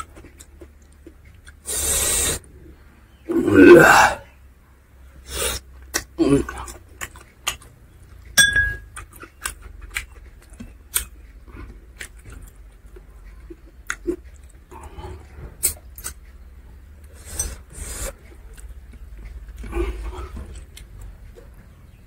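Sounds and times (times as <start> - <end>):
chewing and lip-smacking: 0.0 - 1.6, 5.8 - 17.2, 17.8 - 21.7.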